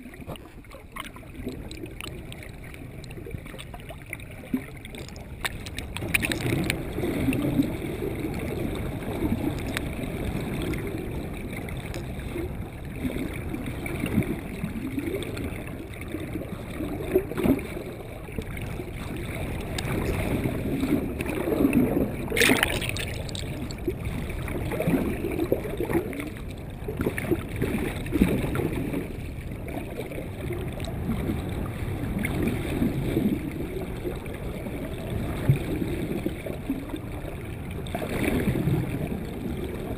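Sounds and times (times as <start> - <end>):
water rushing and gurgling: 0.0 - 39.9.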